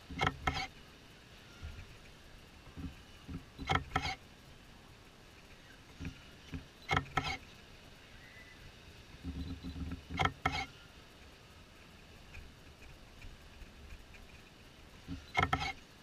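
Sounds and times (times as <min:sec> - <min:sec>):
ride mechanism clanking and squeaking: 0:00.0 - 0:00.8, 0:02.8 - 0:04.2, 0:05.4 - 0:07.5, 0:09.2 - 0:10.8, 0:15.0 - 0:15.8.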